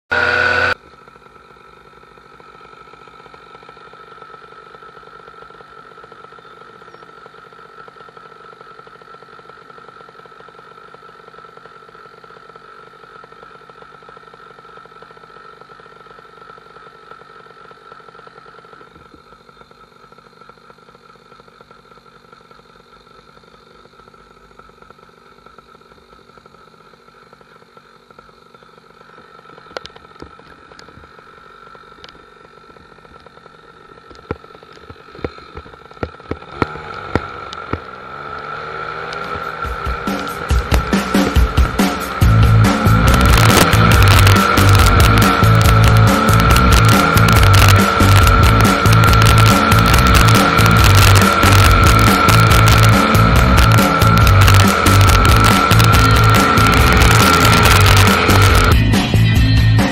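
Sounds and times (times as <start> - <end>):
paramotor engine idling: 0.1 - 59.9.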